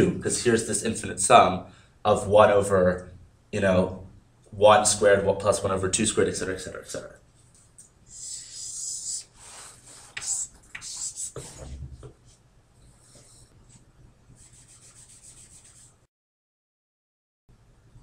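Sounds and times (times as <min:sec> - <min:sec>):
chalk scratching on blackboard: 0:08.1 - 0:11.9, 0:14.4 - 0:16.1.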